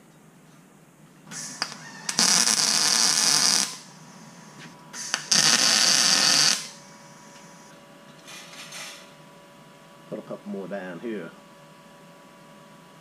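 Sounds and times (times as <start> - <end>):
welder arc buzzing: 1.3 - 7.7.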